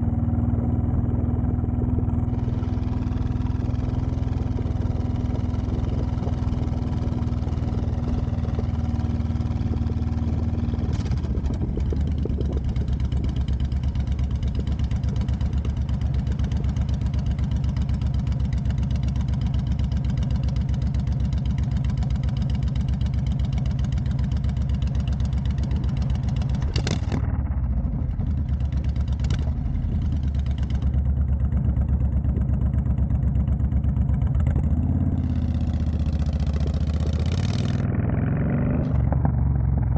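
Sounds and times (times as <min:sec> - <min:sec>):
motorcycle engine throbbing: 0:00.0 - 0:39.9.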